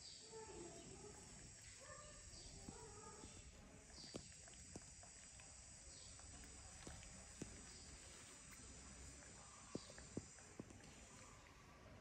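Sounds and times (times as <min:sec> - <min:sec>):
faint high-pitched hiss: 0:00.0 - 0:12.0.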